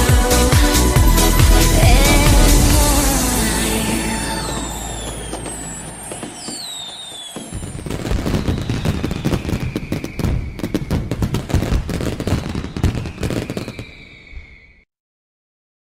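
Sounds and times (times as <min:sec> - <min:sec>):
fireworks crackling and banging: 0:00.8 - 0:14.6
falling whistle: 0:01.4 - 0:10.9, 0:12.5 - 0:14.9.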